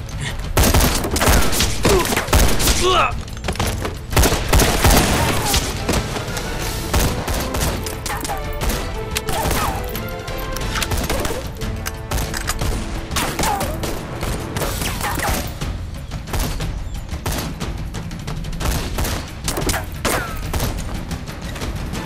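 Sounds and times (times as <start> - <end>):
rifle and pistol shots: 0.5 - 9.9, 10.5 - 15.6, 18.6 - 20.9.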